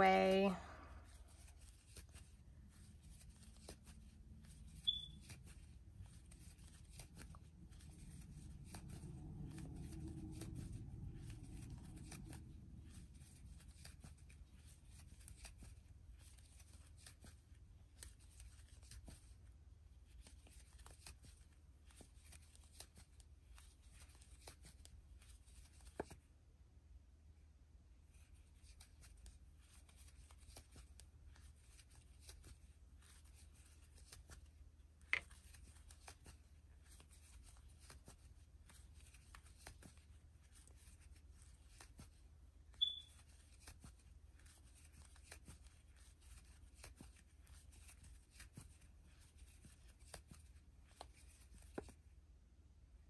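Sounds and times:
yarn and crochet hook rustling: 0.0 - 26.3, 28.0 - 52.3
brief high squeak: 4.8 - 5.2, 42.8 - 43.2.

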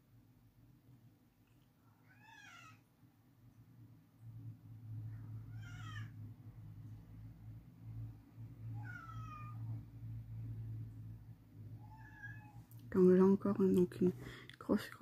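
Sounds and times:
cat meowing: 2.0 - 2.8, 5.4 - 6.2, 8.7 - 9.8, 11.8 - 12.7
steady low hum: 3.0 - 15.0.

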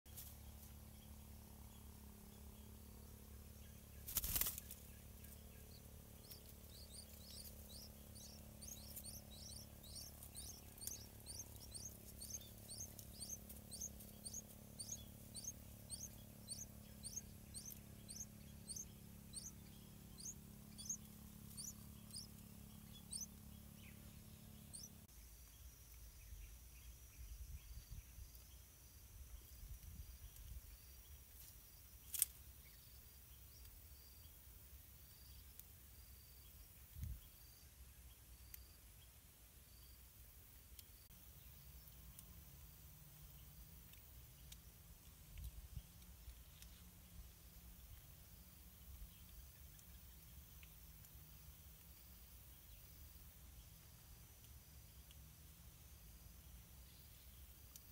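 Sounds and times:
bird chicks begging chirps: 0.1 - 25.1.

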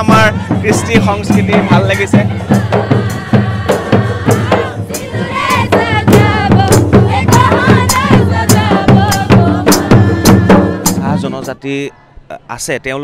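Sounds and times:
folk drumming: 0.0 - 11.6
group singing: 0.0 - 12.2.

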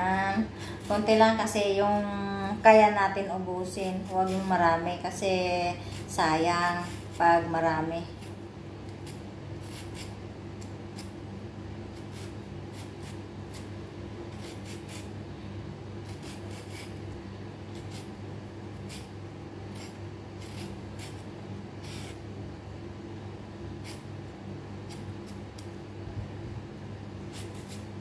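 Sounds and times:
steady low hum: 0.0 - 28.0
peeler scraping potato skin: 0.6 - 1.7, 3.6 - 11.2, 11.9 - 15.2, 16.0 - 22.2, 23.8 - 24.1, 24.8 - 25.7, 27.2 - 28.0.

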